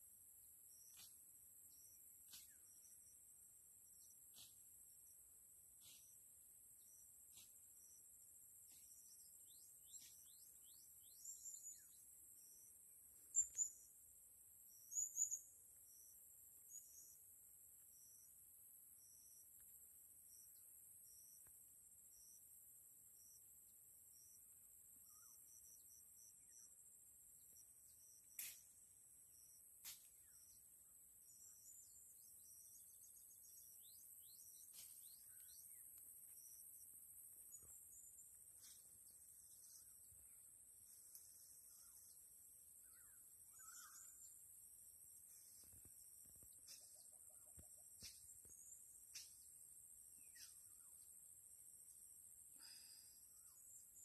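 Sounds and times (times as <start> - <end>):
high insect drone: 13.5 - 47.1
birds chirping: 31.2 - 51.2.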